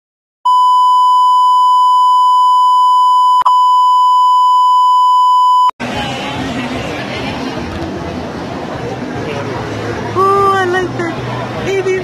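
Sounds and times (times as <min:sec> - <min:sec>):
high electronic beep: 0:00.5 - 0:05.8.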